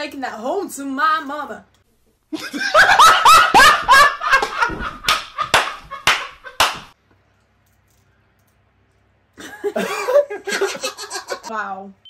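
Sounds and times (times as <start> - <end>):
man laughing hard: 2.4 - 6.6, 9.4 - 11.5
hands clapping sharply: 4.4 - 7.0.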